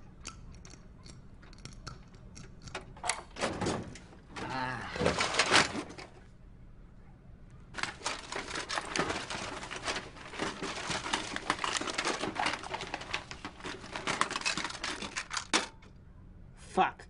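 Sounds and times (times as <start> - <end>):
paper rustling: 5.0 - 6.1, 7.8 - 15.8
small objects rattling in drawer: 5.0 - 6.2, 7.8 - 15.9.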